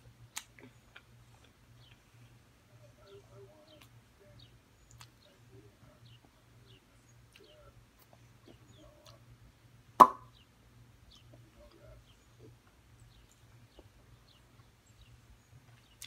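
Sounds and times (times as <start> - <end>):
sharp knock: 10.0 - 10.3.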